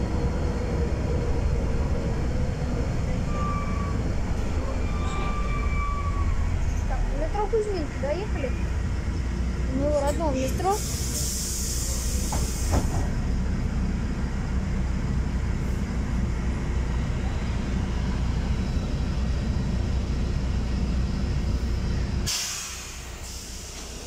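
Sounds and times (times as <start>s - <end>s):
bus engine and road rumble: 0.0s - 24.0s
compressed-air hiss: 10.8s - 12.9s, 22.3s - 24.0s.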